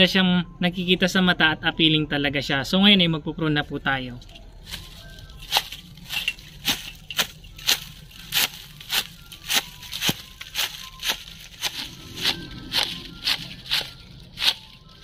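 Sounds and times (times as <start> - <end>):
hedge shears snipping: 4.7 - 15.0.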